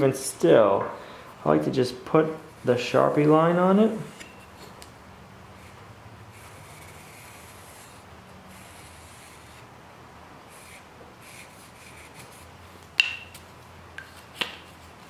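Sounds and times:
marker rubbing on knife blade: 5.6s - 9.7s, 10.5s - 12.5s.

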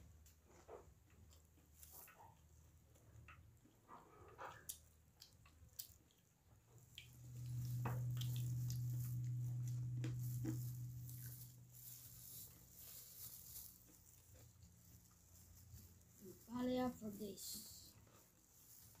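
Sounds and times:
wet chewing: 3.2s - 15.6s
low steady hum: 4.6s - 19.0s.

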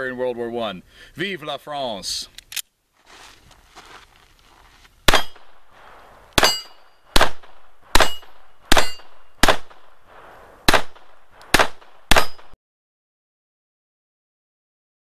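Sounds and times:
pistol shots: 5.1s - 12.6s
steel target plates clanging: 6.4s - 7.0s, 8.0s - 9.3s.

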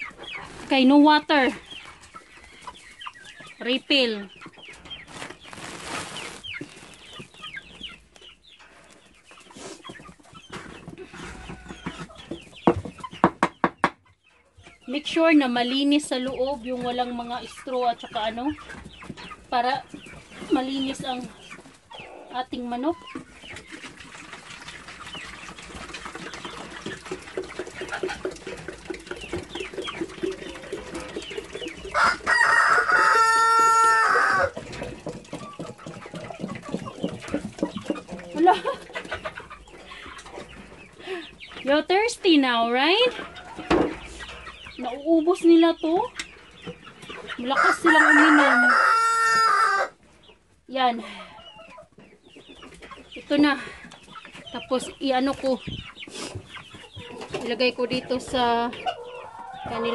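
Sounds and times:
chickens clucking and cheeping: 0.0s - 59.9s
rooster crowing: 32.0s - 34.6s, 47.6s - 50.0s.

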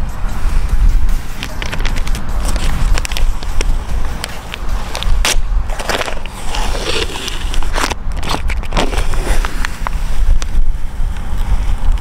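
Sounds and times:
paper tape crackling: 1.4s - 10.6s.

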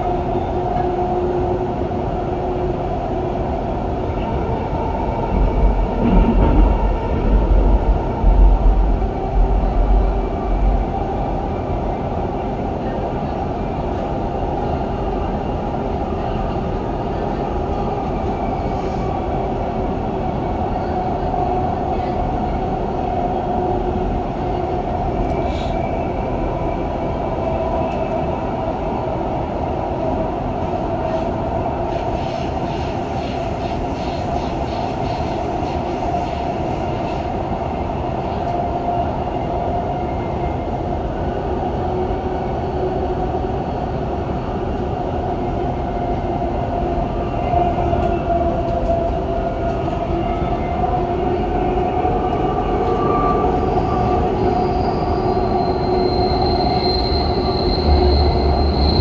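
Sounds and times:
train rumbling inside carriage: 0.0s - 59.0s
faint high-pitched squeal: 53.2s - 59.0s.

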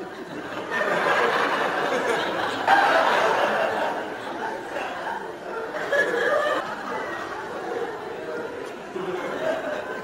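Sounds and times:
people laughing: 0.0s - 10.0s.

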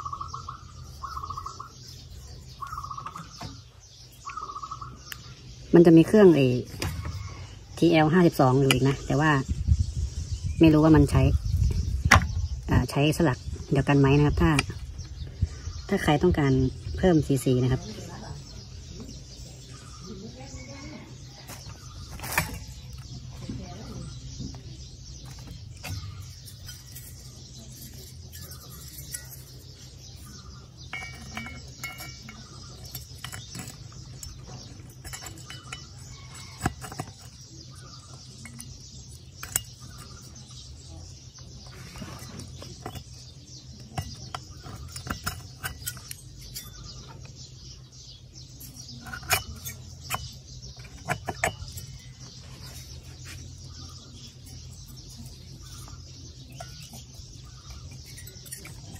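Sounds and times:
sharp metal knocks: 30.4s - 37.4s
light metallic clicks and clinks: 30.9s - 37.2s.

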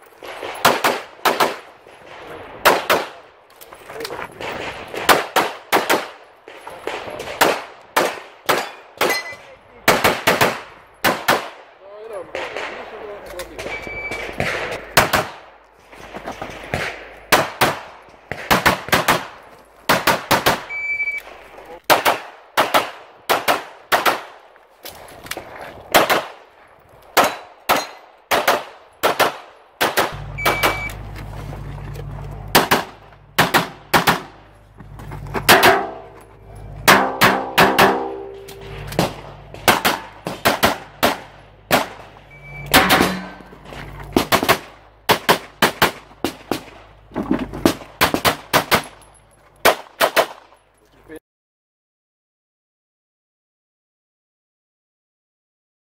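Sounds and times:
pistol shots: 0.2s - 3.3s, 4.3s - 11.7s, 12.3s - 15.6s, 16.4s - 21.1s, 21.8s - 24.5s, 25.9s - 26.5s, 27.1s - 31.0s, 32.5s - 34.5s, 35.4s - 36.2s, 36.8s - 47.0s, 47.6s - 49.0s, 49.6s - 50.6s
shot timer beep: 13.7s - 14.2s, 20.7s - 21.2s, 30.3s - 31.0s, 42.3s - 43.4s.

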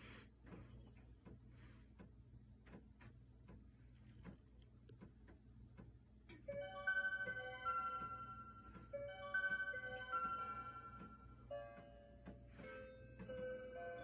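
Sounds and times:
wall clock bell melody: 6.4s - 14.0s.

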